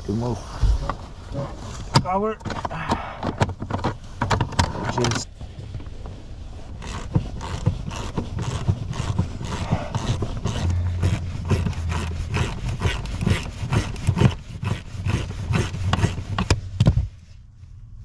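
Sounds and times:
plastic trim clicks and scrapes: 0:06.8 - 0:17.0.

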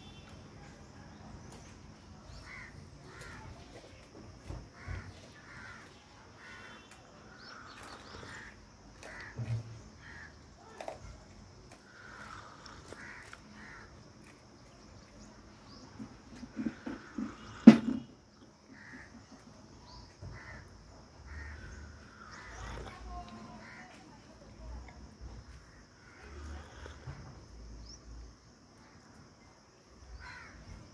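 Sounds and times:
crow cawing: 0:02.4 - 0:03.5, 0:04.8 - 0:10.8, 0:11.9 - 0:13.9, 0:20.2 - 0:20.7, 0:21.3 - 0:23.9, 0:30.2 - 0:30.6.

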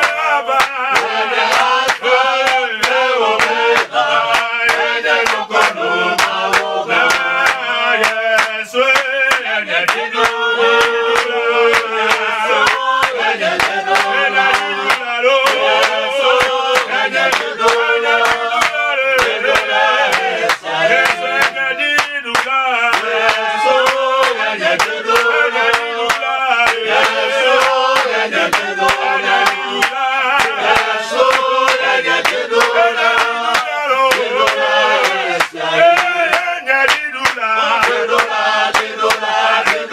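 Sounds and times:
men singing a worship song: 0:00.0 - 0:39.9
rhythmic hand clapping: 0:00.0 - 0:39.9.

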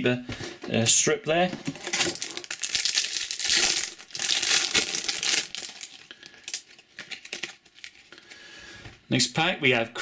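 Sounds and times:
foil wrapper tearing and crinkling: 0:01.8 - 0:08.1.

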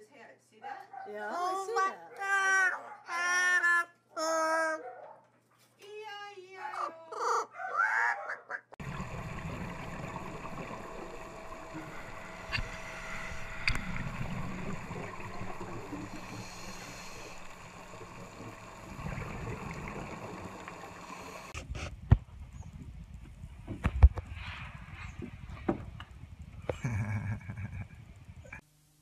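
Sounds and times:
underwater rumble and hiss: 0:08.8 - 0:21.6.

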